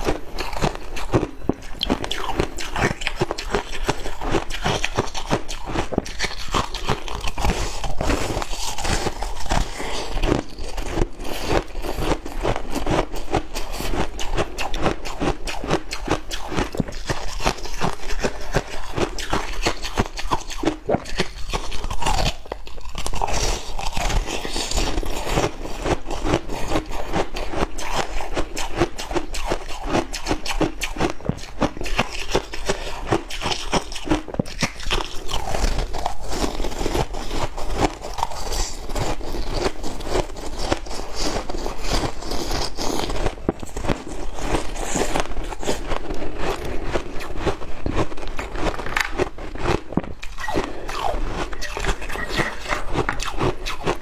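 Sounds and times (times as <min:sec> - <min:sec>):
ice crunching while chewed: 0:00.0 - 0:54.0.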